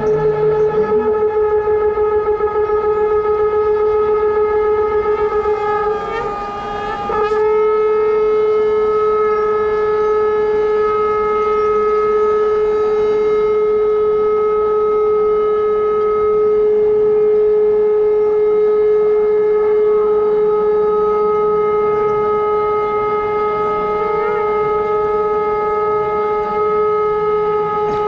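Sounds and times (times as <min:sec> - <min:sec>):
conch shell blown: 0:00.0 - 0:28.0.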